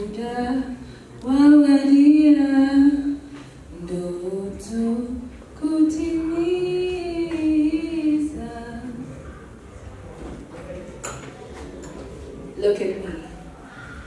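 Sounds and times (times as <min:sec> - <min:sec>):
woman singing unaccompanied: 0:00.0 - 0:09.1.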